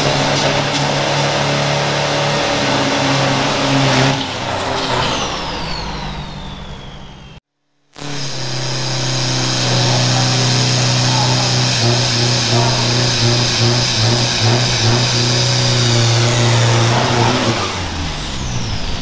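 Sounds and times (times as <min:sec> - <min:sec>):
truck engine revving: 0:00.0 - 0:07.4, 0:08.0 - 0:19.0
tyres spinning: 0:08.6 - 0:18.7.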